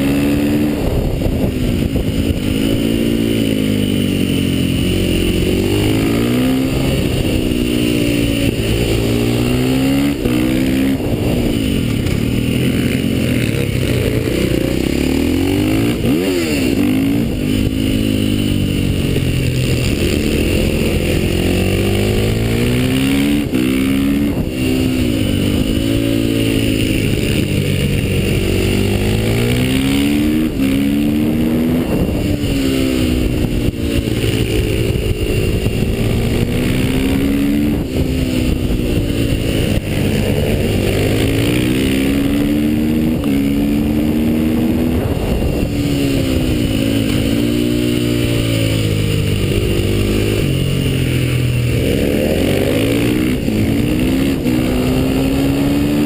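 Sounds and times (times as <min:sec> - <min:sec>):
motorcycle engine accelerating: 0:00.0 - 0:56.0
wind noise on microphone: 0:00.0 - 0:56.0.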